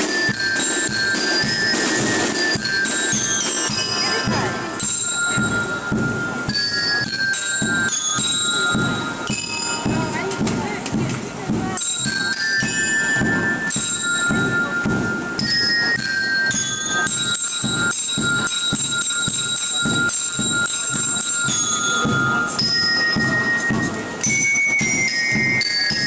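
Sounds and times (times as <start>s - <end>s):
bell lyres playing melody: 0.0s - 26.0s
steady drum beat: 0.0s - 26.0s.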